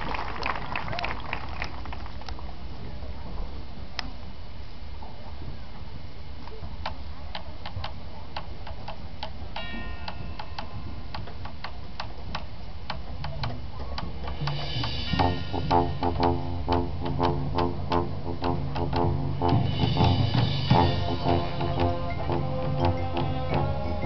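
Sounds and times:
percussion clicks: 6.4 - 19.6
low sustained band tones: 14.6 - 24.0.

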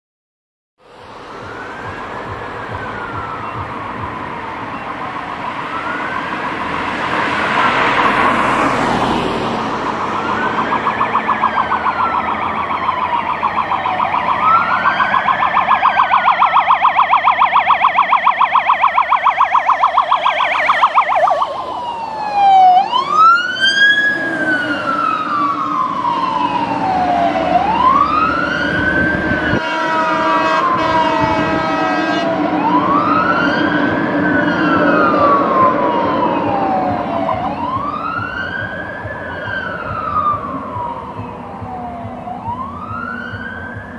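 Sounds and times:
car passing: 0.8 - 43.9
fire engine sirens wailing: 0.8 - 43.9
siren fast yelp: 1.0 - 43.9
air horns chord: 29.5 - 32.6.

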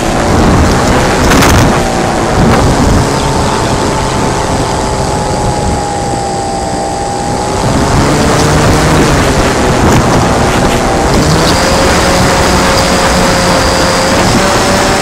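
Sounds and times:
propeller motor whining: 0.0 - 15.0
wind rush on microphone: 0.0 - 15.0.

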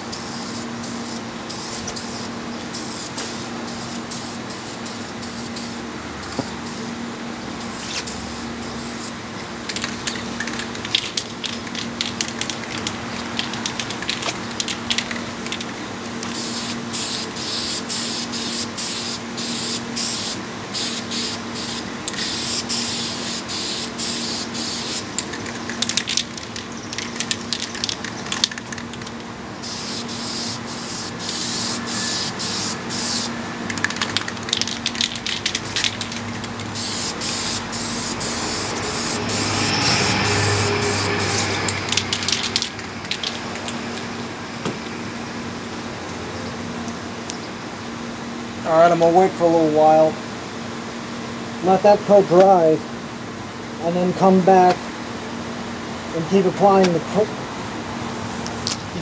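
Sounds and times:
spray-paint can hissing: 0.1 - 5.8, 7.6 - 9.1, 16.3 - 43.7.

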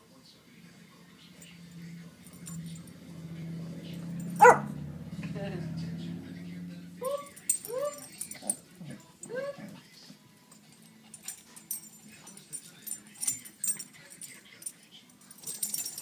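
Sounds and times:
dog barking: 4.3 - 4.8.

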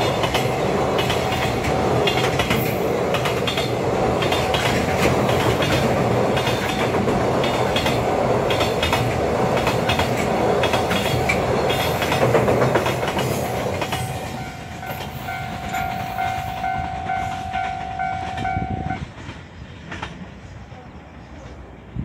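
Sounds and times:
train wheels clickety-clack: 0.0 - 20.8
pulsing warning tone: 14.0 - 19.1.

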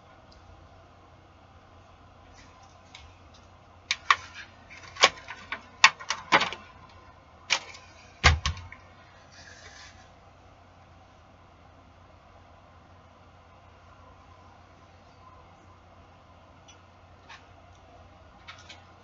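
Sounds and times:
foil tray crinkling and clicking: 2.9 - 8.8.

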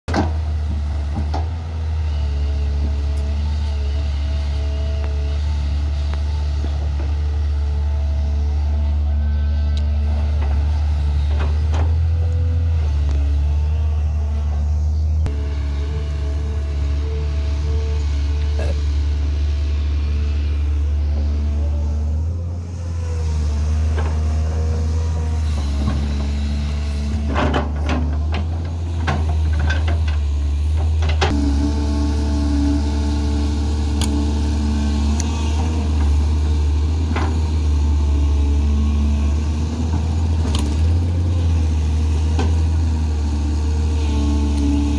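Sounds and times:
excavator knocks and rattles: 0.1 - 1.8, 27.1 - 31.3
excavator diesel engine droning: 0.1 - 44.9.

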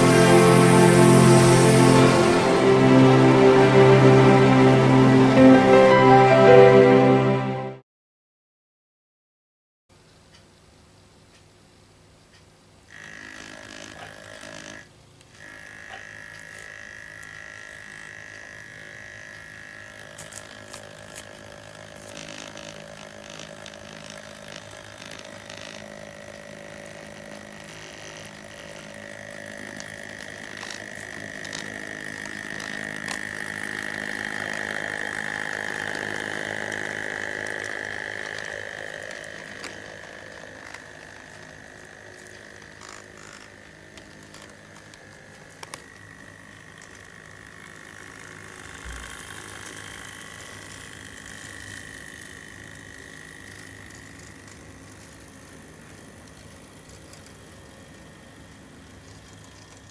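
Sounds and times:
model train motor whine: 0.0 - 5.4, 12.9 - 59.9
wheels clicking on track: 12.9 - 59.9.

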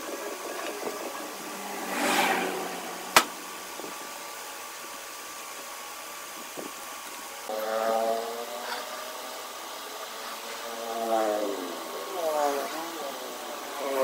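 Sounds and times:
workshop machine hum: 0.0 - 6.4.

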